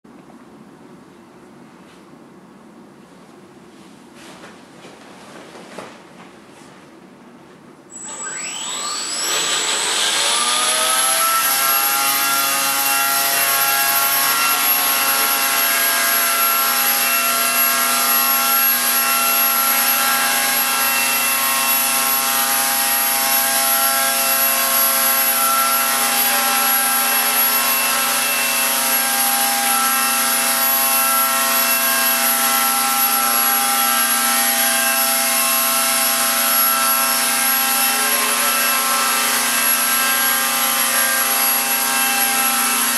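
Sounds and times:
electric motor whine: 0:07.9 - 0:15.6.

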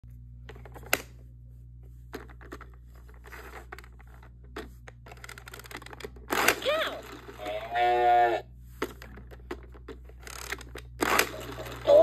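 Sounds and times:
plastic toy rattle: 0:05.0 - 0:07.5, 0:09.0 - 0:12.0.

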